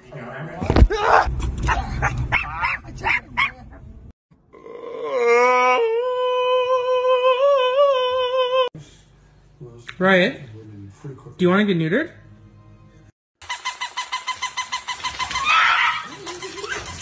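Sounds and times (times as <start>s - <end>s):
dogs yipping and yelping: 1.6s - 3.7s, 13.4s - 17.0s
small dog howling: 4.6s - 8.7s, 15.4s - 16.9s.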